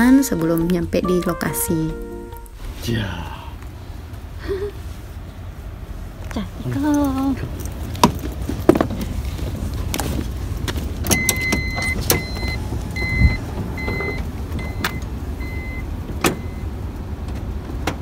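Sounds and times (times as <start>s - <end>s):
low rumble: 0.0s - 11.0s
car warning beeps: 11.0s - 16.7s
car door clicks and thump: 16.1s - 16.5s.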